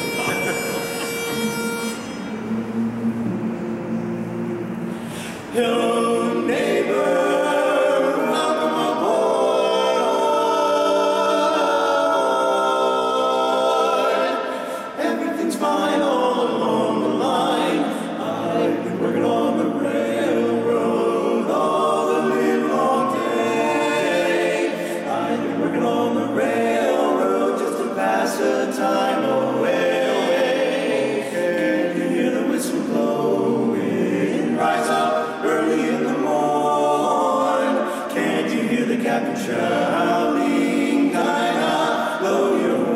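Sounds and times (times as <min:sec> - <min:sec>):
men singing a cappella harmony: 0:02.3 - 0:42.9.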